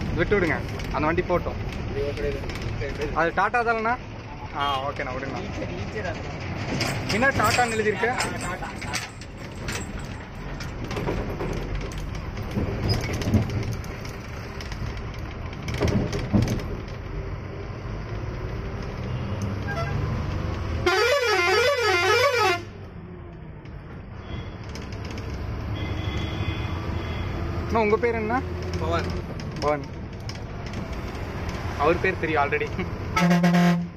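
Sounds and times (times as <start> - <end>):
truck engine and road noise: 0.0 - 33.9
warbling truck horn: 20.8 - 22.7, 33.2 - 33.9.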